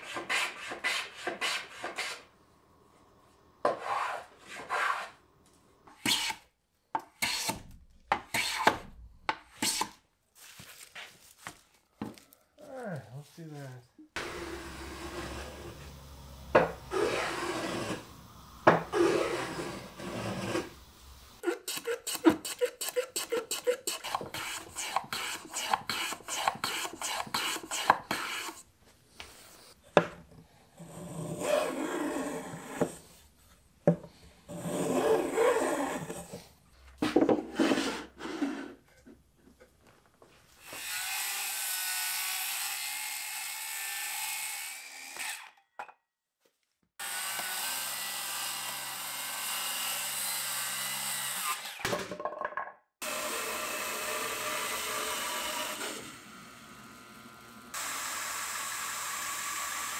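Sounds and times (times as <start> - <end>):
hand-tool strokes on wood: 3.7 - 5.2, 6.0 - 6.4, 14.2 - 16.0, 16.6 - 18.0, 18.6 - 20.8, 21.4 - 28.6
circular saw cutting: 14.2 - 28.6, 40.7 - 45.5, 47.0 - 51.8, 53.0 - 59.9
hand plane shaving wood: 16.9 - 18.0, 18.9 - 20.7, 21.7 - 28.6.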